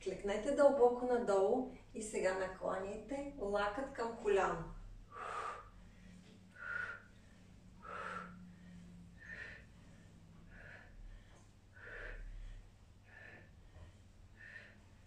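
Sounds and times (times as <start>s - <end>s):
woman breathing out hard: 5.1s - 9.7s.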